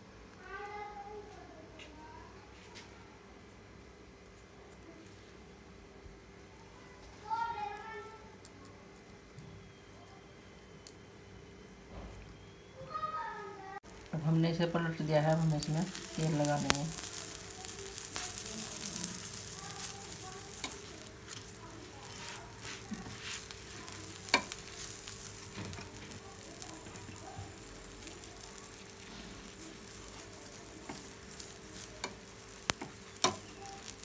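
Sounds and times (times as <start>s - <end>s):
oil sizzling on a hot pan: 3.2s - 34.0s
spoon clicking against pan: 24.0s - 24.6s, 31.8s - 34.0s.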